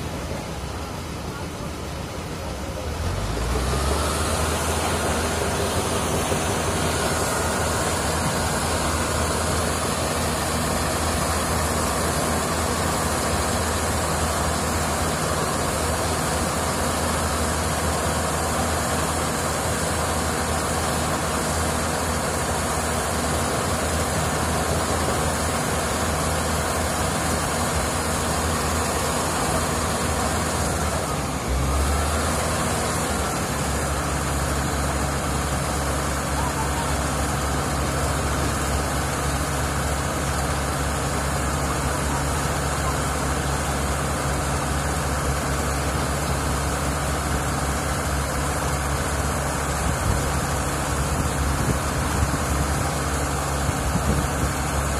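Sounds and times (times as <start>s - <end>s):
diesel engines droning: 0.0s - 54.9s.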